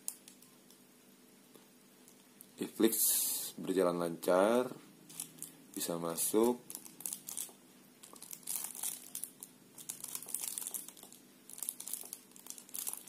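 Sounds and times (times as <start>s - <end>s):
faint low hum: 0.0s - 13.0s
crackling handling noise: 5.1s - 13.0s.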